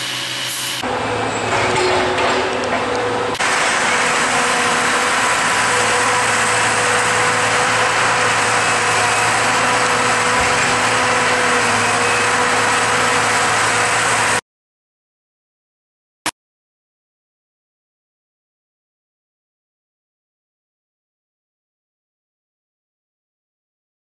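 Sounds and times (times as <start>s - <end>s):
truck engine running: 0.0s - 14.4s.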